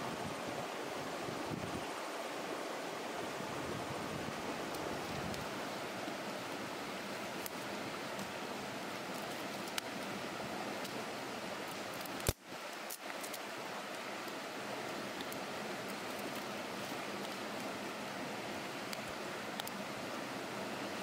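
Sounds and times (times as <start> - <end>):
campfire crackling: 4.3 - 20.1.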